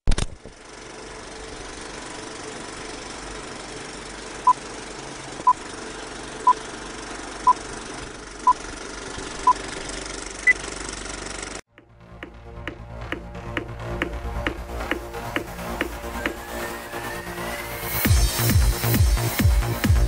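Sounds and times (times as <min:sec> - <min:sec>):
film projector running: 0:00.2 - 0:11.7.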